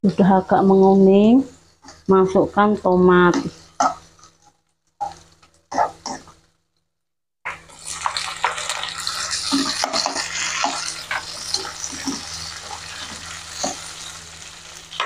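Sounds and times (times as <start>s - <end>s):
spatula scraping and knocking wok: 3.3s - 6.4s, 7.5s - 15.0s
tomatoes sizzling in hot oil: 7.5s - 15.0s.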